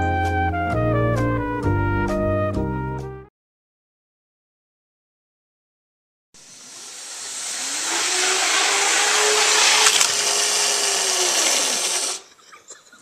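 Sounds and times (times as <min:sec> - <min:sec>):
model train motor whining: 0:06.4 - 0:12.3
rattle of wheels and gears: 0:07.1 - 0:13.0.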